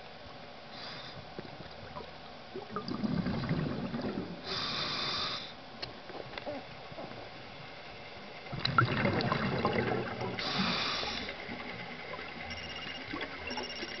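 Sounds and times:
diver exhaling bubbles underwater: 2.6s - 4.8s, 8.5s - 11.4s.

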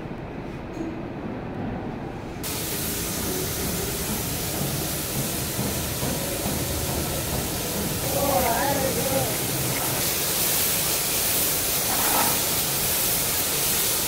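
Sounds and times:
spray guns hissing: 2.4s - 14.0s.

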